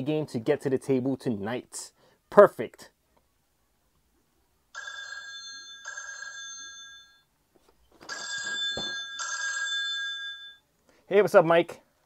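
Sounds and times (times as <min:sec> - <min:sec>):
mobile phone ringing: 0:04.7 - 0:07.3, 0:08.0 - 0:10.7.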